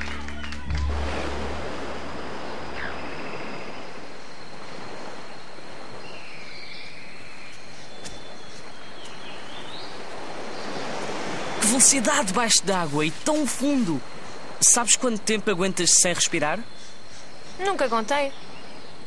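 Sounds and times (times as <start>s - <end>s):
low hum: 0.0s - 3.8s
ocean surf: 0.0s - 6.6s, 7.9s - 17.9s.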